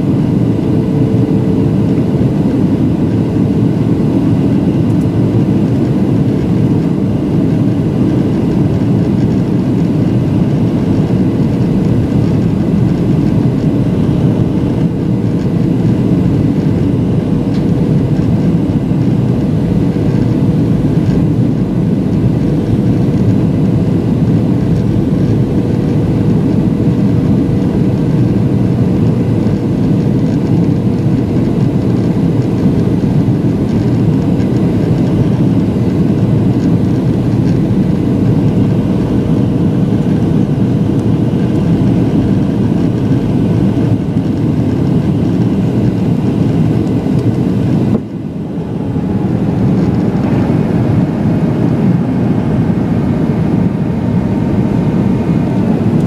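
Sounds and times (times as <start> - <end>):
jet engines rumbling: 0.0 - 56.0
rushing air: 46.3 - 55.8.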